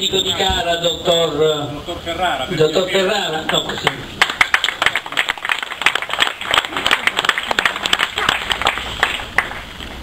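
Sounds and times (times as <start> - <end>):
voices: 0.0 - 5.4
people clapping: 3.4 - 9.8.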